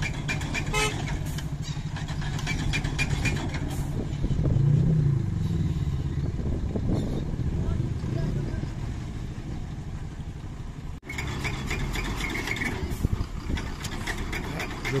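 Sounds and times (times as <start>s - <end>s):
suv engine straining and revving: 0.0s - 15.0s
sharp clatters: 11.0s - 15.0s.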